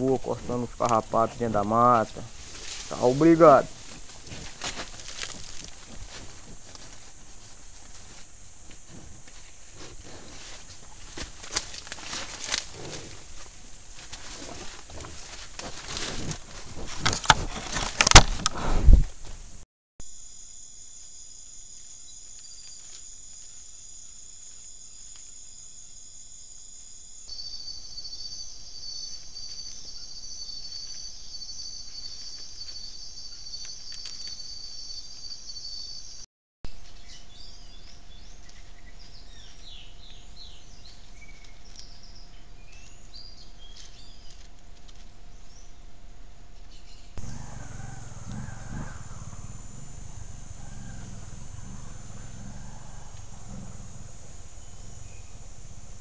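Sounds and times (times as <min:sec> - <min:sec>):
night insects trilling: 0:00.0 - 0:16.4, 0:20.0 - 0:36.2, 0:47.2 - 0:56.0
birds calling: 0:46.6 - 0:56.0
motorcycle engine passing: 0:47.2 - 0:56.0
steady hum: 0:47.2 - 0:56.0.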